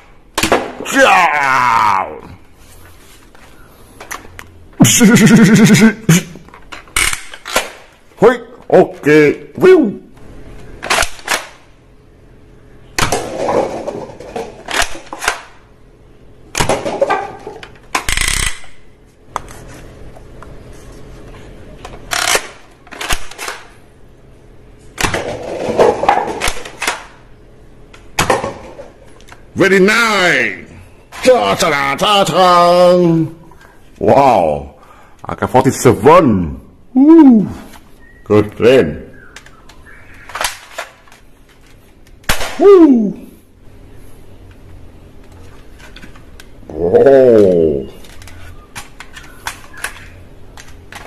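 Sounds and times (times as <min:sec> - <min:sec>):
man shouting whooo: 0:00.9 - 0:02.4, 0:37.0 - 0:37.6, 0:42.6 - 0:43.4
paper cups clattering down: 0:13.0 - 0:15.2.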